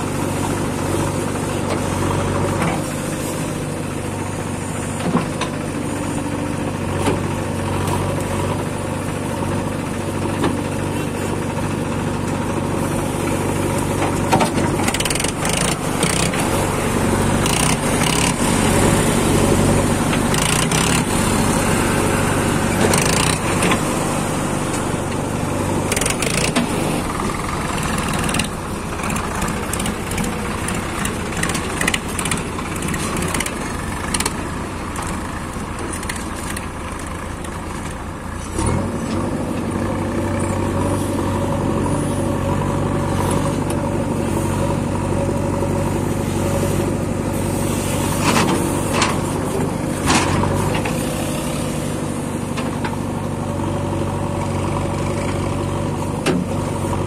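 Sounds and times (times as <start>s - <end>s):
diesel engine running: 0.0s - 57.0s
loader bucket knocks and clatters: 13.8s - 16.6s, 48.2s - 51.0s.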